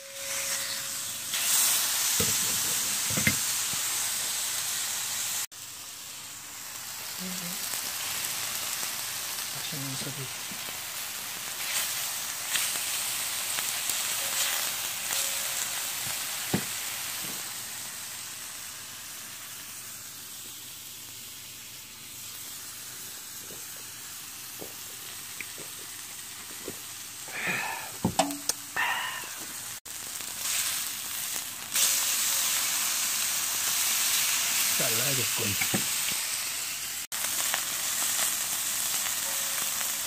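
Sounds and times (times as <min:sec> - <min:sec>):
meat sizzling on a griddle: 0:00.0 - 0:40.0.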